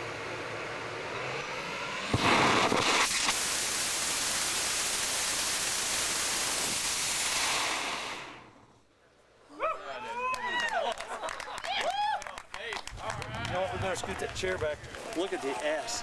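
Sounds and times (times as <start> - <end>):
rocket motor rushing hiss: 0.0 - 8.7.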